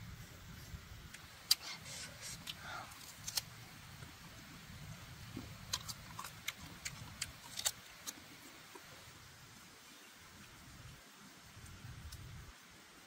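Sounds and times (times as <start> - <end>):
sharp irregular clicks and snaps: 1.0 - 4.2, 5.2 - 8.9, 11.6 - 12.4.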